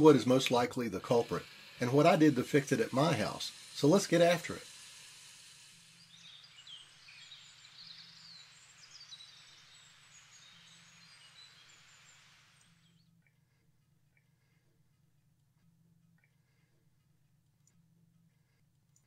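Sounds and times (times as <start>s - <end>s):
birds chirping: 0.0s - 4.8s, 5.8s - 14.8s
soft hiss: 0.0s - 13.0s.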